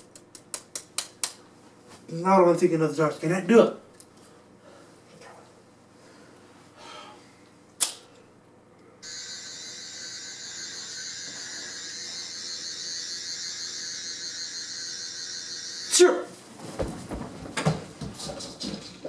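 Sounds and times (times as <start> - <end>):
sharp click: 7.8 - 8.0
high-pitched electronic whirring tone: 9.0 - 16.1.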